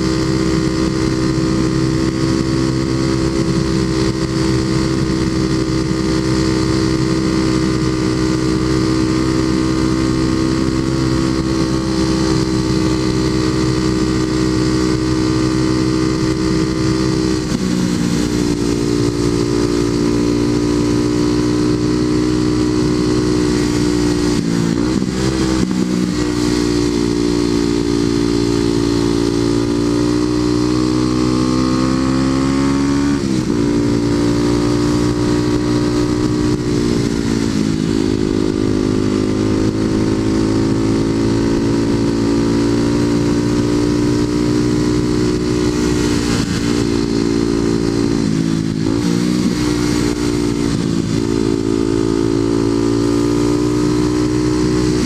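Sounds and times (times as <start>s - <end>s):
motorcycle engine at road speed: 0.0s - 55.0s.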